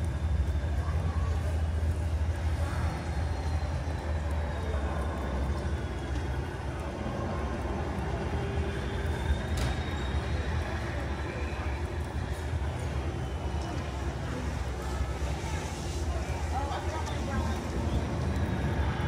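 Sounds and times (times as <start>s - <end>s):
steady rain hissing: 0.0s - 19.0s.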